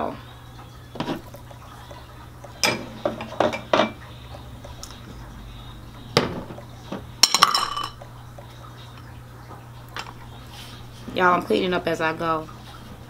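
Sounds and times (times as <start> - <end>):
low steady hum: 0.0 - 13.0
utensils and bowls clattering: 0.9 - 5.0, 6.1 - 8.1.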